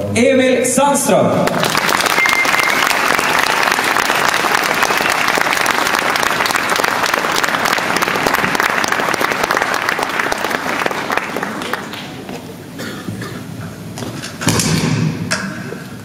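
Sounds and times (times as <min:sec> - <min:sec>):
audience applauding: 0:01.4 - 0:12.7.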